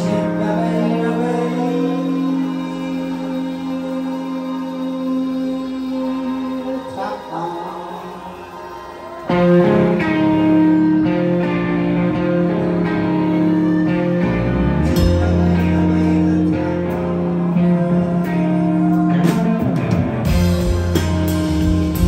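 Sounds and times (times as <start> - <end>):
rock band playing: 0.0 - 22.0.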